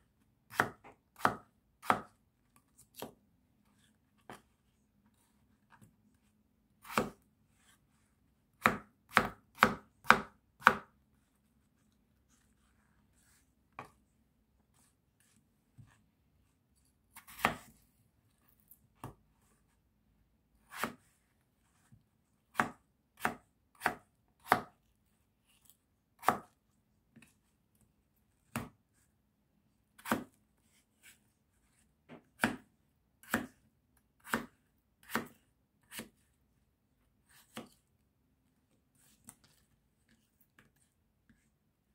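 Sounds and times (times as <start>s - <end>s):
knife chopping on plastic board: 0.5s - 4.5s, 6.8s - 7.8s, 8.5s - 11.0s, 17.1s - 17.8s, 19.0s - 19.2s, 20.6s - 21.2s, 21.8s - 24.8s, 25.6s - 27.3s, 28.4s - 29.0s, 30.0s - 30.4s, 31.0s - 36.3s, 37.3s - 37.8s.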